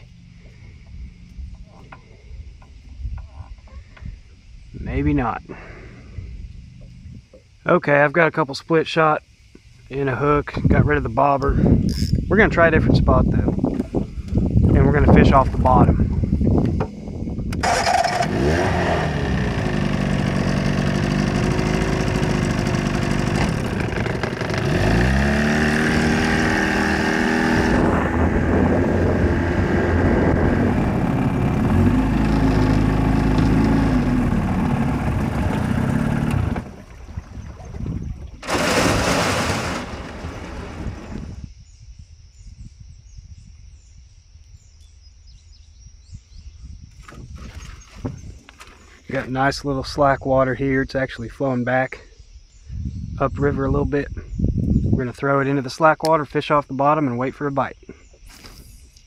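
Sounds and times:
outboard motor running: 17.6 - 41.4.

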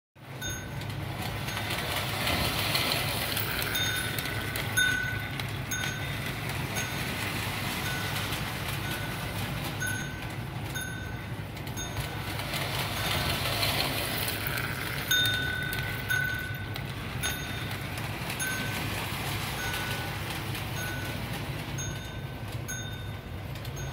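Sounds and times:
toy train motor and wheel rumble: 0.2 - 23.9
small bell dinging: 15.1 - 18.8.

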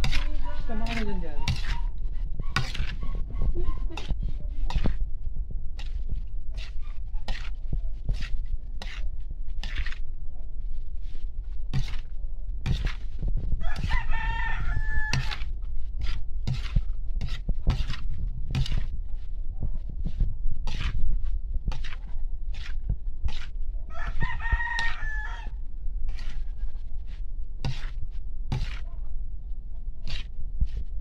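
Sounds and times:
metal spatula scraping a wok: 0.0 - 3.2, 3.8 - 5.0, 5.8 - 10.0, 11.7 - 14.0, 14.7 - 18.9, 20.6 - 25.2, 26.1 - 28.9, 30.0 - 30.8
rooster crowing: 13.6 - 15.4, 23.9 - 25.6.

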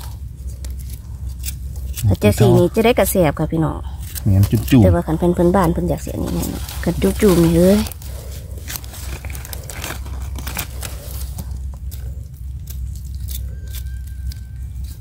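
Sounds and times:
dry leaf litter rustling: 5.8 - 11.6.

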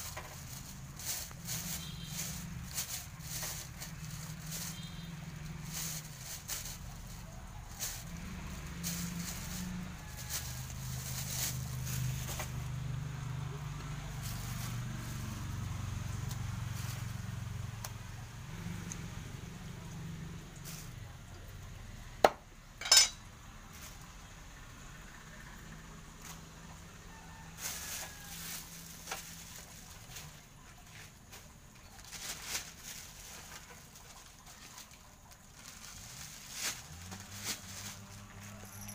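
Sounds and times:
paper and plastic bag crinkling: 0.0 - 12.8, 14.1 - 15.3, 27.2 - 38.9
engine idling: 0.0 - 27.8.

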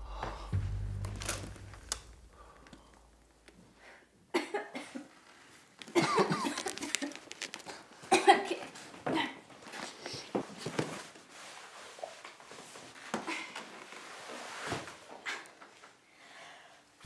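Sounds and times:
low drone: 0.0 - 3.2.

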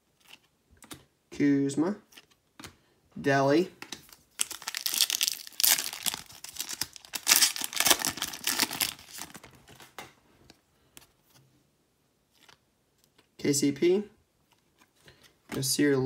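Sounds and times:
wrapper crinkling: 4.1 - 10.0.

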